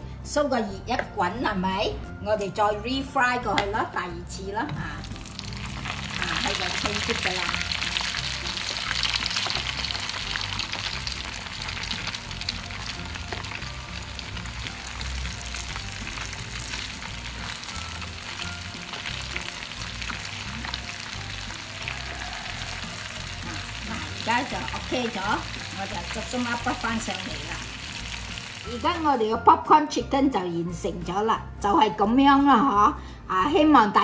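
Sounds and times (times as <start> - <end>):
food deep-frying in oil: 4.8 - 29.2.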